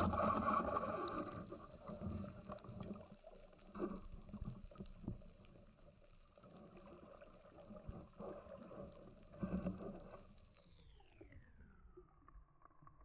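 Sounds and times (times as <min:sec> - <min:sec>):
muffled water sloshing underwater: 0:00.0 - 0:13.0.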